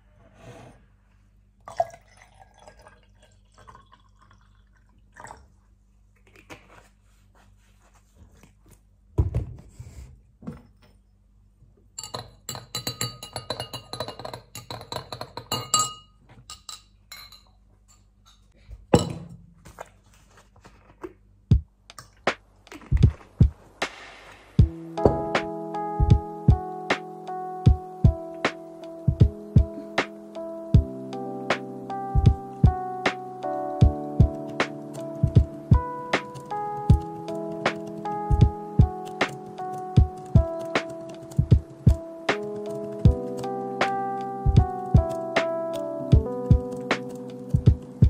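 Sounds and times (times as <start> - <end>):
metal spoon clinking in glass: 12.0 - 18.1.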